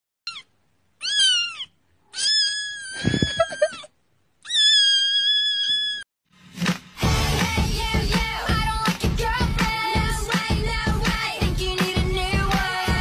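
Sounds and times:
kitten meowing: 0.3s - 6.0s.

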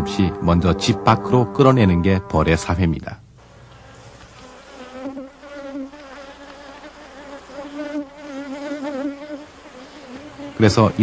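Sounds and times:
honeybees buzzing: 3.4s - 11.0s.

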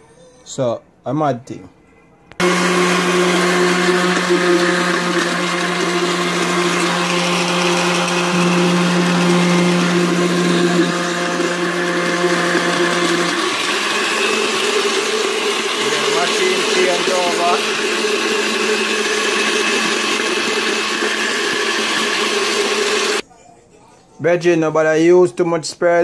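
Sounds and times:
blender motor running: 2.4s - 23.2s.

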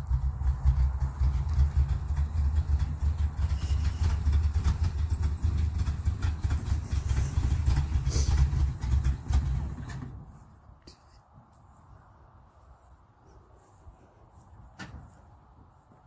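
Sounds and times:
truck engine driving past: 0.0s - 10.2s.

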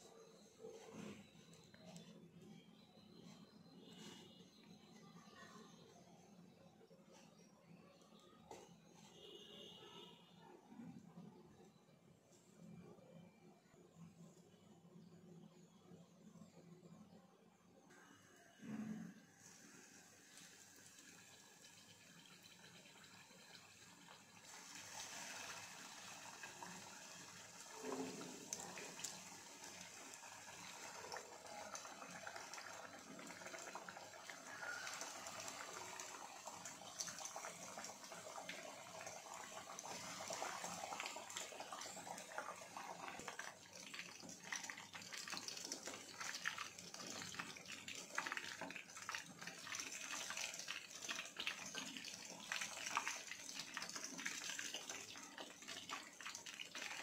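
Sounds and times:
food sizzling in hot oil: 19.4s - 57.0s.

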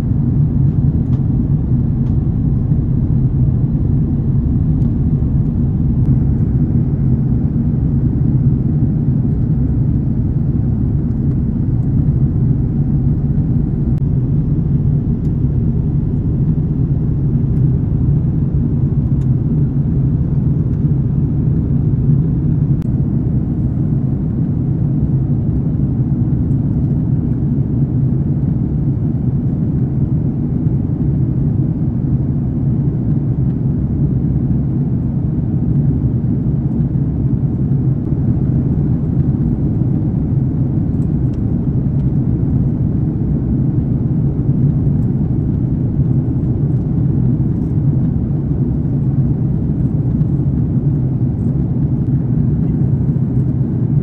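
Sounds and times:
airliner cabin engine rumble: 0.0s - 54.0s.

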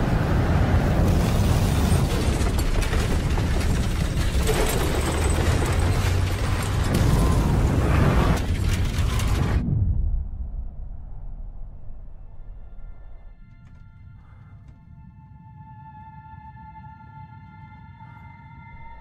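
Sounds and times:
heavy rumble: 0.0s - 13.4s
booms: 0.8s - 12.4s
rapid mechanical clattering: 1.3s - 9.6s.

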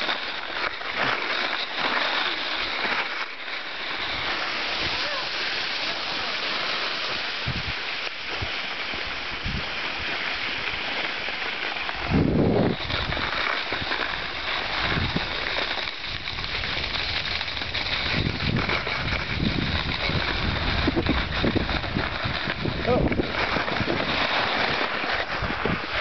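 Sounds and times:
hiss of sliding over snow: 0.0s - 26.0s
wind on microphone: 7.4s - 10.8s, 12.0s - 26.0s.

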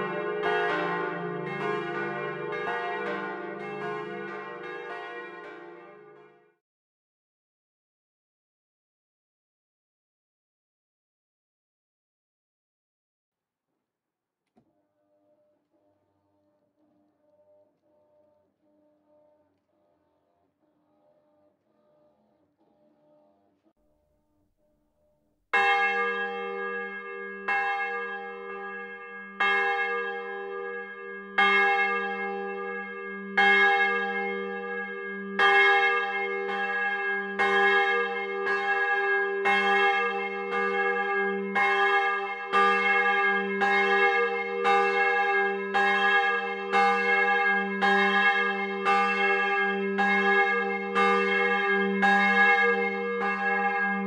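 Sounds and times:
church bell ringing: 0.0s - 6.4s, 25.6s - 54.0s.

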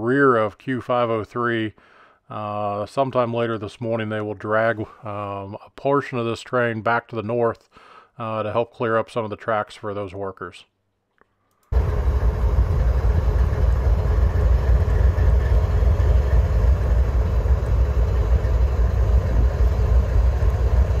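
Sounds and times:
diesel locomotive rumble: 11.7s - 21.0s.

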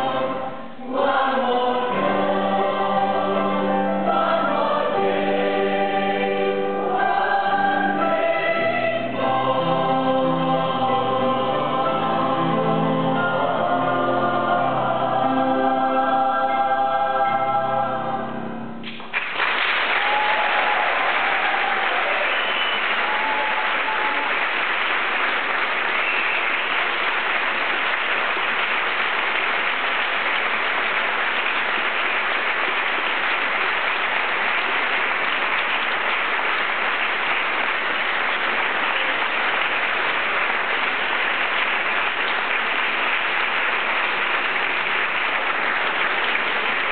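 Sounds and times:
crowd applauding: 18.8s - 46.9s.

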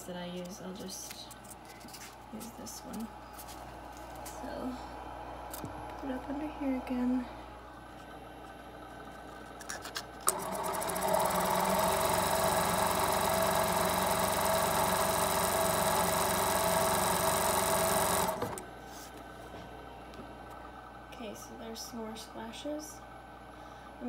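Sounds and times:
sewing machine clicks: 10.2s - 18.6s
sewing machine running: 10.2s - 18.6s.

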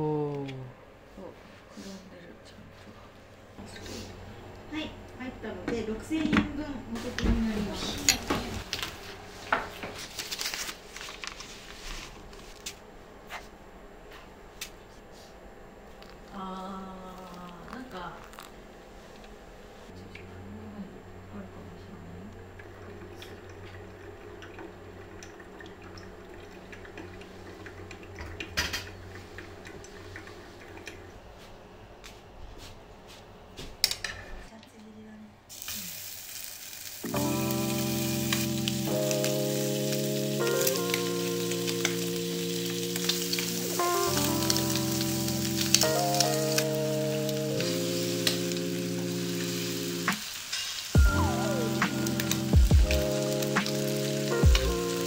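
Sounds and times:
food sizzling in a pan: 35.5s - 55.0s
music playing: 37.0s - 50.2s, 51.0s - 55.0s.

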